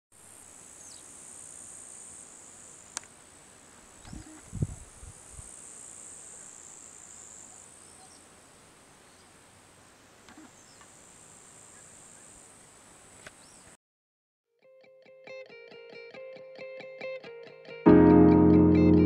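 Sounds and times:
crickets chirring: 0:00.3 - 0:03.4, 0:04.0 - 0:08.6.

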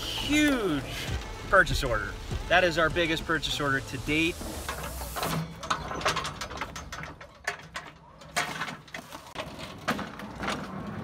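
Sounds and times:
metallic clanks and rattles: 0:04.4 - 0:11.0
pallet jack rolling on asphalt: 0:04.6 - 0:11.0.

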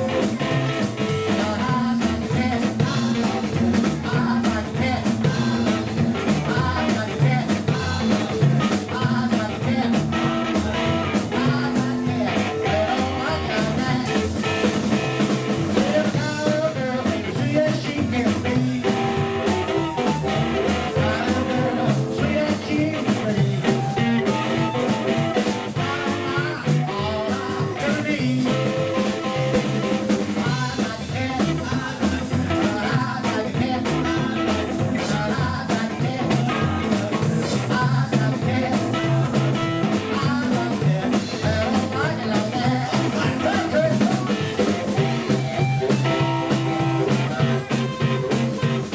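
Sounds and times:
blues band playing: 0:00.0 - 0:48.9
man singing: 0:00.0 - 0:48.9
harmonica: 0:18.6 - 0:22.4, 0:23.8 - 0:27.4.

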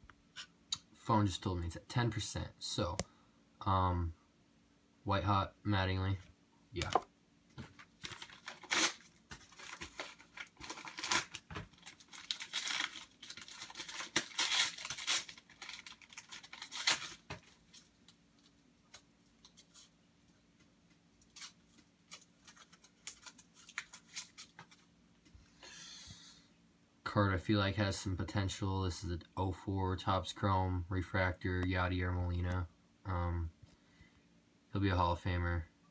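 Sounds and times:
packaging tearing and crinkling: 0:07.9 - 0:17.9, 0:21.3 - 0:24.6.

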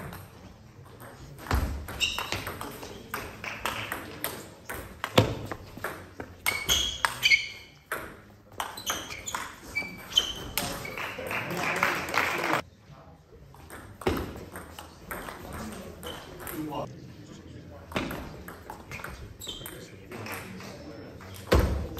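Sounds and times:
shoes squeaking on wooden floor: 0:01.5 - 0:03.1, 0:05.2 - 0:11.1.

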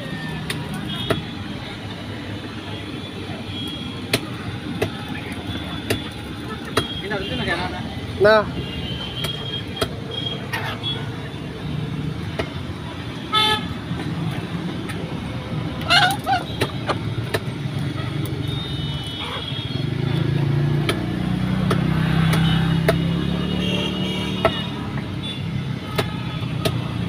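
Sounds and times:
road traffic rumble: 0:00.0 - 0:27.0
chicken squawk: 0:15.9 - 0:17.0.

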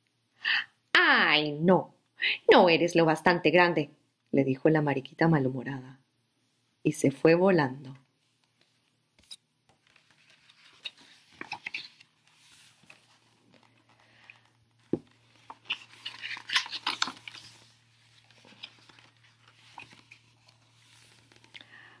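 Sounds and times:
paper pages rustling: 0:09.6 - 0:22.0.

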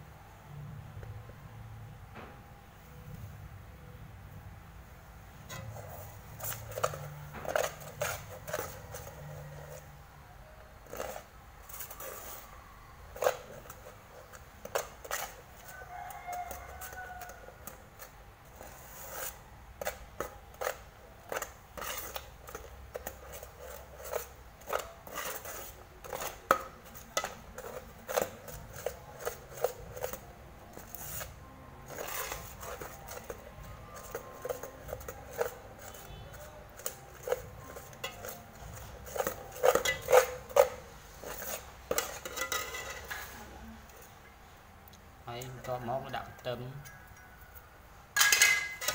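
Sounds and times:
spoon scraping a metal pot: 0:05.5 - 0:10.0, 0:10.8 - 0:44.1, 0:48.2 - 0:48.9.

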